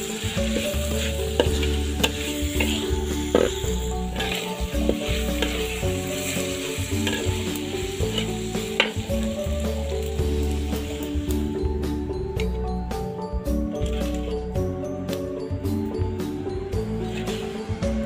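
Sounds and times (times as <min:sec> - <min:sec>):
metal spatula scraping wok: 0:00.0 - 0:11.3, 0:13.7 - 0:14.6, 0:16.8 - 0:17.8
food sizzling: 0:00.0 - 0:15.6, 0:16.7 - 0:18.0.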